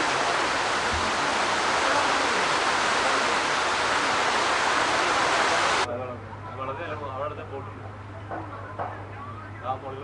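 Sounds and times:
heavy rain on water: 0.0 - 5.9.

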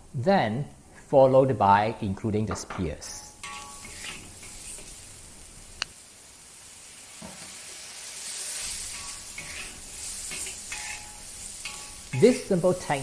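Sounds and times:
vegetables sizzling in a wok: 3.1 - 13.0
metal spatula scraping wok: 3.4 - 5.1, 8.2 - 12.9.

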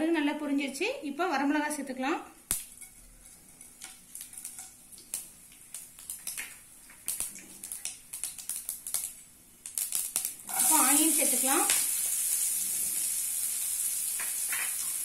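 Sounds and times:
mustard seeds popping in oil: 2.5 - 3.0, 3.6 - 12.5, 14.0 - 15.0.

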